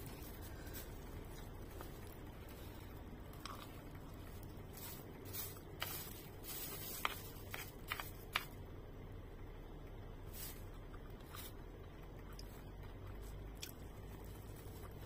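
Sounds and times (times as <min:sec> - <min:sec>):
low hum: 0:00.0 - 0:15.0
plastic spoon scraping tray: 0:04.7 - 0:08.5.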